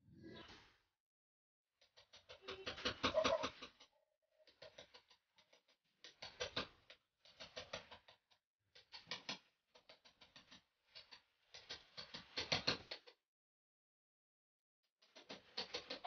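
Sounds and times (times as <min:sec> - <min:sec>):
clicking and scraping at electrical box: 0:15.0 - 0:16.0.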